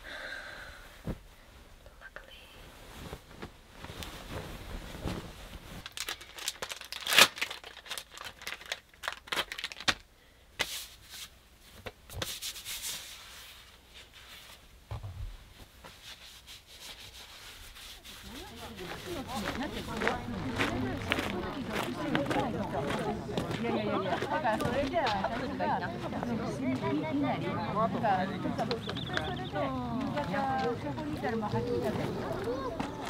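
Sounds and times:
cloth sheet rustling: 2.6s - 5.9s.

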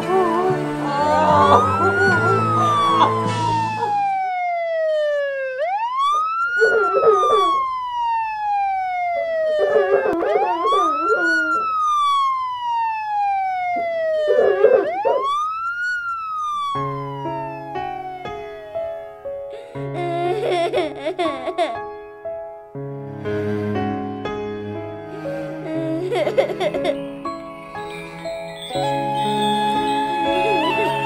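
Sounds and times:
music: 0.0s - 4.0s, 16.8s - 20.5s, 21.8s - 31.0s
emergency siren wailing: 0.0s - 19.2s, 26.1s - 31.0s.

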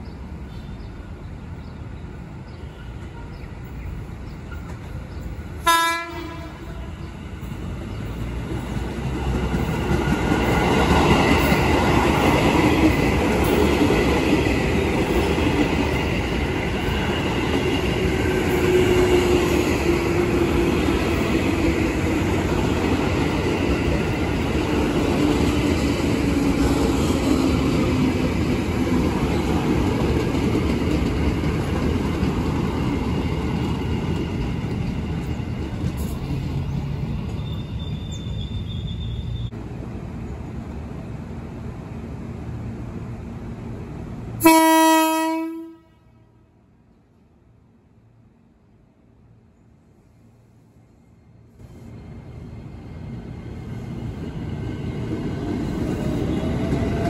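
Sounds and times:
train rumbling past: 0.0s - 57.0s
train horn blast: 5.6s - 7.0s, 44.4s - 46.5s.

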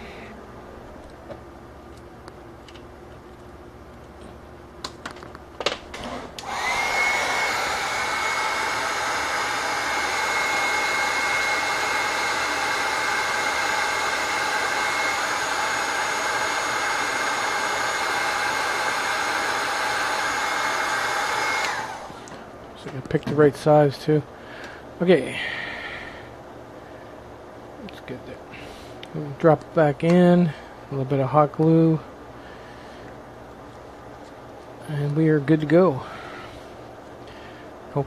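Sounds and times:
heat gun blowing with whine: 5.6s - 26.4s.

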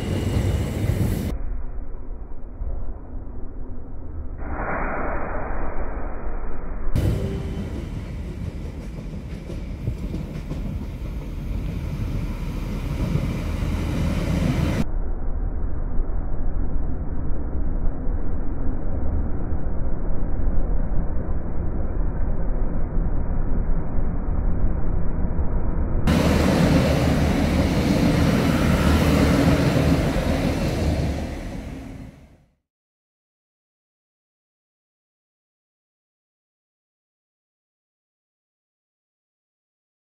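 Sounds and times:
train passing: 0.0s - 1.4s, 7.0s - 14.8s, 25.7s - 32.5s
electric train rumbling: 0.0s - 32.5s.

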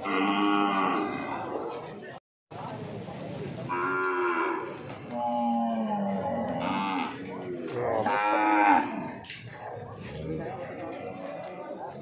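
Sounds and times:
cattle mooing: 0.0s - 1.4s, 3.7s - 7.2s, 7.9s - 9.2s.

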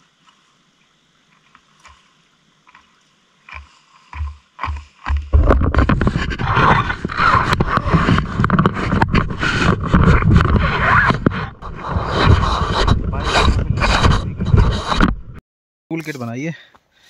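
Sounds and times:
gear scraping and knocking: 3.5s - 15.4s.

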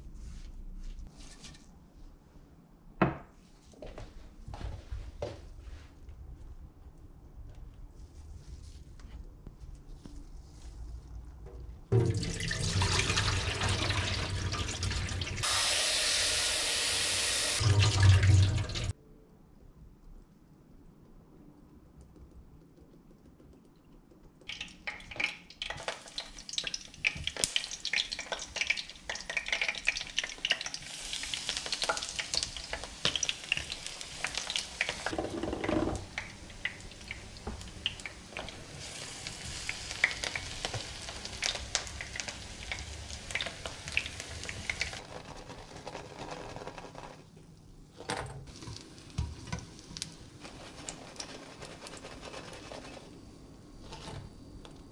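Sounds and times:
food frying in hot oil: 11.9s - 18.9s, 24.5s - 47.1s, 48.5s - 53.1s.

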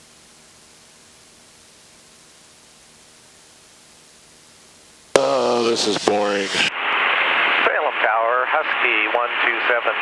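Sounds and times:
steady hiss: 0.0s - 10.0s
aircraft engine drone: 5.1s - 10.0s.

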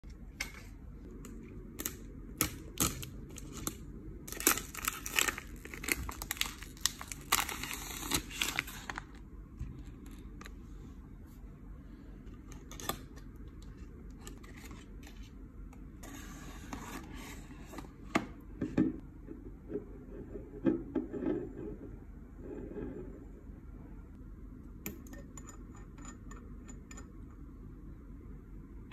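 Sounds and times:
plastic wrapping crinkling: 1.8s - 10.6s.

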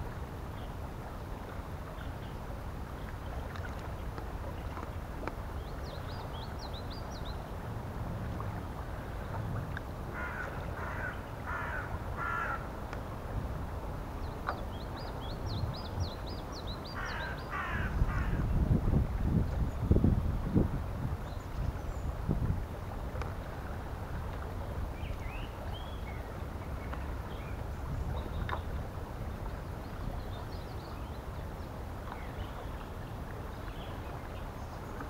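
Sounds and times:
crow cawing: 10.2s - 12.6s, 17.0s - 18.3s.

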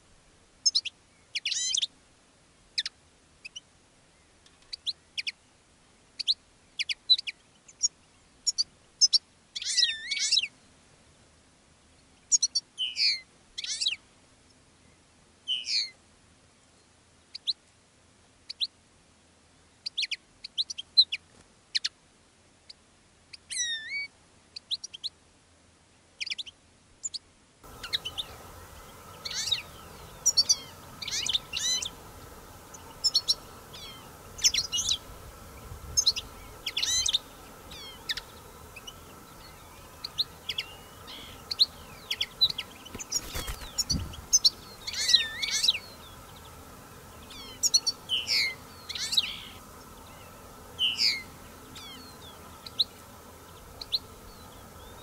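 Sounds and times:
faint steady background hum: 0.0s - 55.0s
finches chirping and twittering: 27.1s - 55.0s.

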